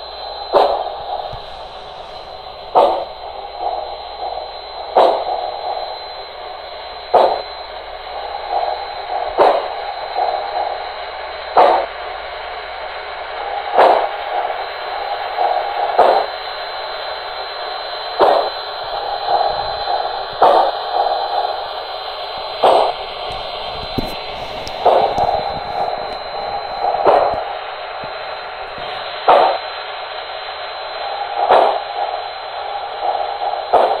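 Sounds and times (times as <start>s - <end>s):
model steam exhaust chuffs: 0.0s - 30.4s
faint high whine: 0.0s - 34.0s.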